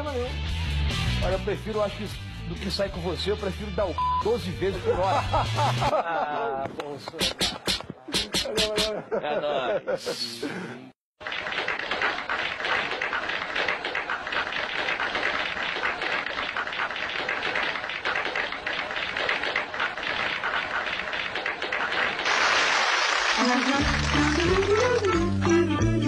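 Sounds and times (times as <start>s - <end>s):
audience applauding: 11.2s - 25.7s.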